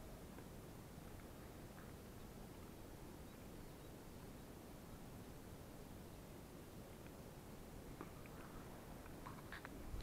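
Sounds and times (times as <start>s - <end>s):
faint high ticks: 7.0s - 7.2s.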